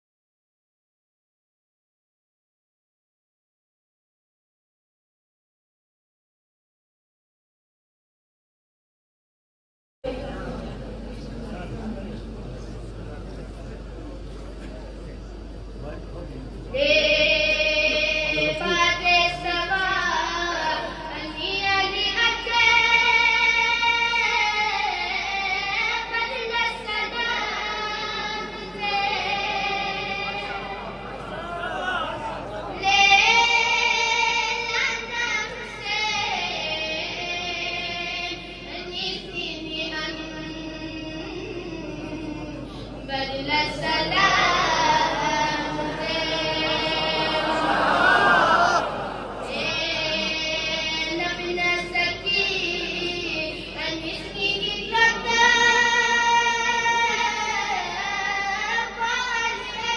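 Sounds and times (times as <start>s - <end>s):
boy singing devotional chant: 16.7s - 31.4s, 32.4s - 47.7s, 48.5s - 59.9s.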